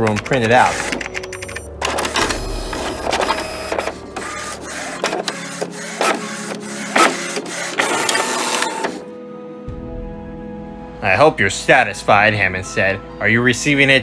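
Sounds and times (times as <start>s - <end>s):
printer clicking: 0.0s - 9.0s.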